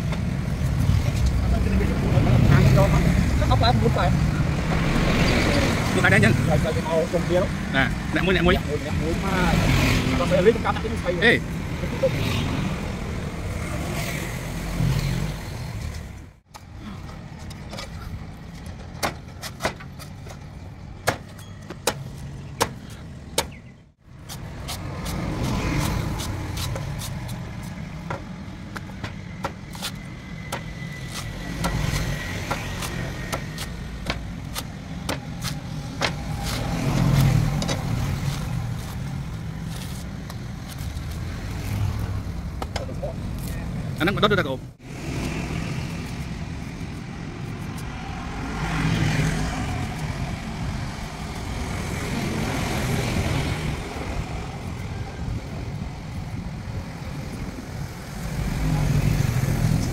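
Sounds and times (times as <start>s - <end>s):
road traffic rumble: 0.0s - 59.9s
cleaver chopping coconut: 30.5s - 37.4s.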